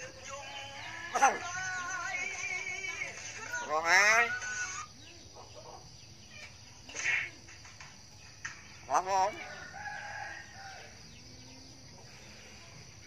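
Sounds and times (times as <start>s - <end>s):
myna bird calling: 0.0s - 7.4s.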